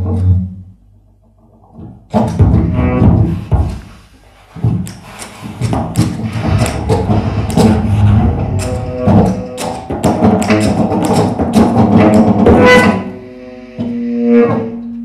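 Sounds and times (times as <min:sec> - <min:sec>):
sharp percussive strikes: 0:06.0 - 0:12.6
saxophone low tones: 0:06.2 - 0:10.7.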